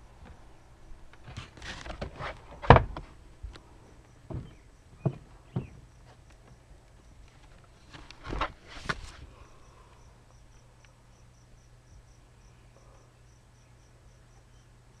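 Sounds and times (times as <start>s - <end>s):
crickets chirping: 3.4s - 8.4s, 9.3s - 15.0s.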